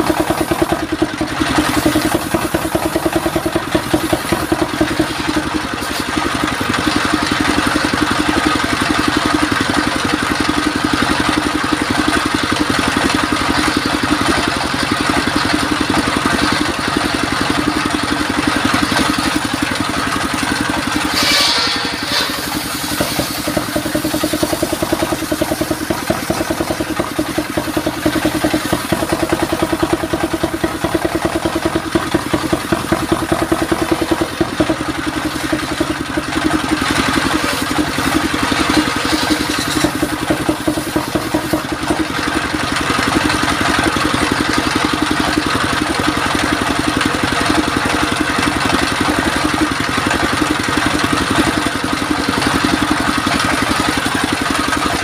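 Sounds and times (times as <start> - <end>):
circular saw cutting wood: 0.0 - 9.2, 18.7 - 44.0
stationary engine running: 0.0 - 55.0.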